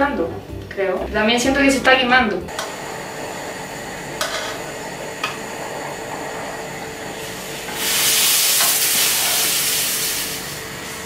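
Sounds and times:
burner click: 0:02.5 - 0:02.8
mixture sizzling in a saucepan: 0:02.6 - 0:11.0
loud hiss: 0:07.1 - 0:11.0.

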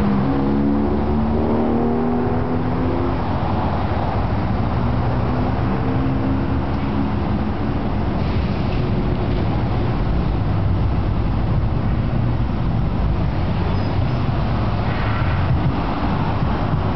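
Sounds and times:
cars driving past slowly: 0:00.0 - 0:16.9.

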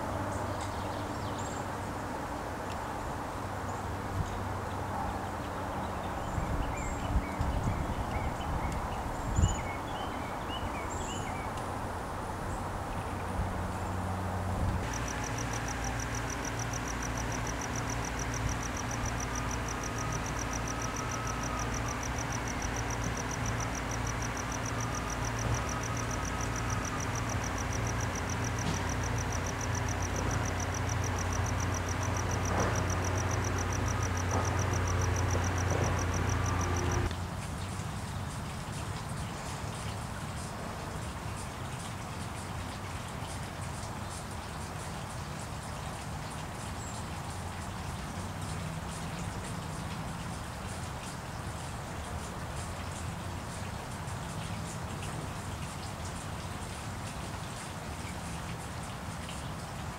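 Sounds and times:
low steady hum: 0:05.9 - 0:40.2.

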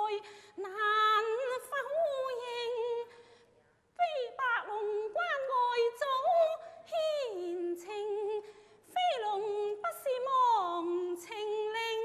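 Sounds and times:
opera singing in a high voice: 0:00.0 - 0:03.1, 0:04.0 - 0:12.0
singer breathing: 0:00.2 - 0:00.6, 0:03.1 - 0:03.9, 0:08.4 - 0:08.9.

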